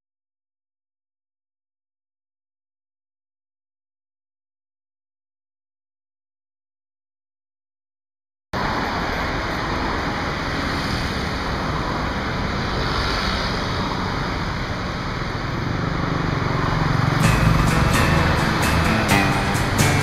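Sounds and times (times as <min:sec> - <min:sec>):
road traffic passing: 0:08.6 - 0:20.0.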